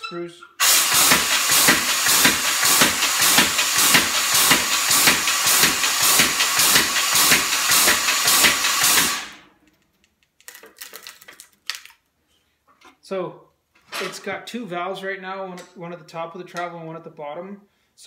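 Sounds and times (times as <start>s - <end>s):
person speaking: 0.0s - 0.6s
air valves hissing: 0.6s - 9.4s
power hammer pounding: 0.6s - 9.4s.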